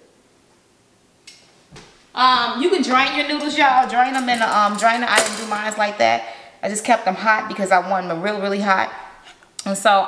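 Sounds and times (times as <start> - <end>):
utensil clinking on metal pot: 3.3 - 5.8.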